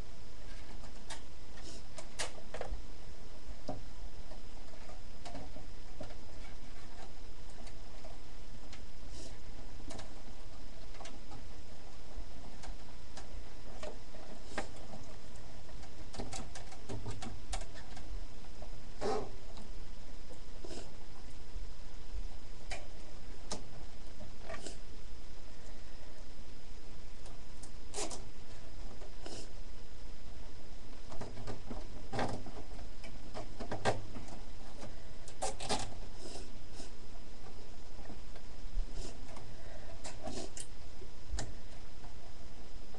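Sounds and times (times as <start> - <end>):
steady low hum: 0.0 - 42.9
plastic scrape: 27.9 - 28.3.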